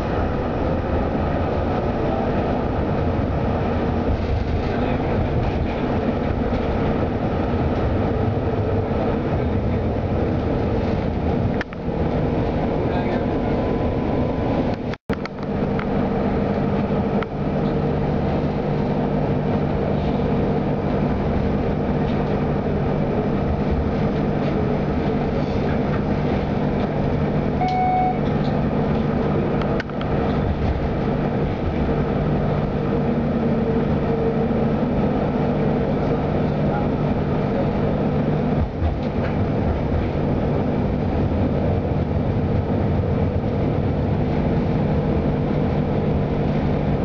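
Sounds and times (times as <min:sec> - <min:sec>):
tram rumbling on rails: 0:00.0 - 0:47.0
short tone: 0:27.6 - 0:28.3.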